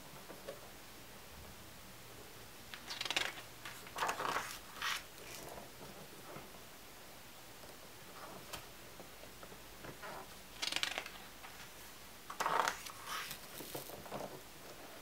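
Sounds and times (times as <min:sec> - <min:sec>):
book page rustling and turning: 0:02.7 - 0:05.6, 0:10.5 - 0:14.4.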